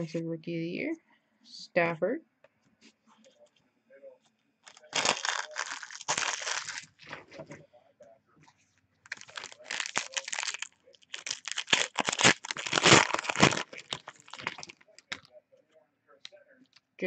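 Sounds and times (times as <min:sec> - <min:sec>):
foil wrapper tearing and crinkling: 0:04.7 - 0:07.0, 0:09.1 - 0:15.2.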